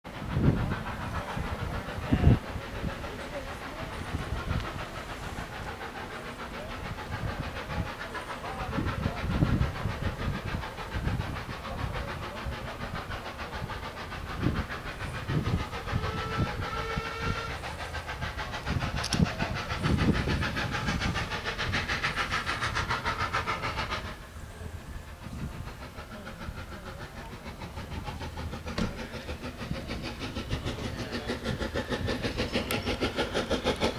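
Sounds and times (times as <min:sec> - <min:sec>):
steam locomotive rumbling: 0:00.0 - 0:33.9
steam hissing: 0:00.1 - 0:33.9
steam whistle: 0:15.9 - 0:17.6
locomotive thumps: 0:28.6 - 0:29.1.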